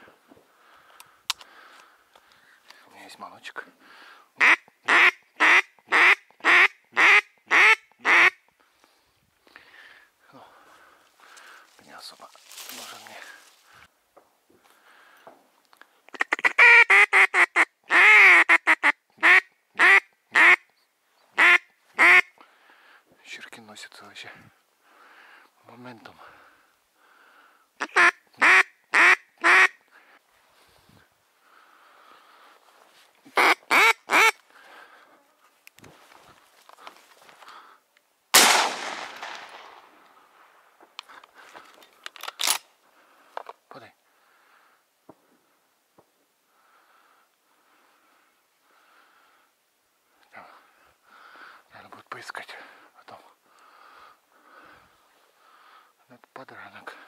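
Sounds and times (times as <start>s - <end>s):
duck call quacks: 4.4s - 8.4s, 16.1s - 20.6s, 21.4s - 22.3s, 27.8s - 29.8s, 33.4s - 34.4s
shotgun shot with echo: 38.4s - 39.9s.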